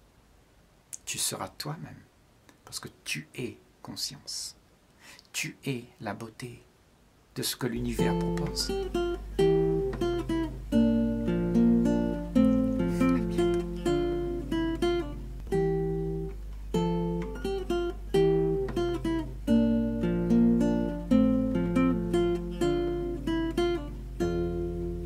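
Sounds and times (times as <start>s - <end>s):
acoustic guitar plucking: 7.8s - 25.0s.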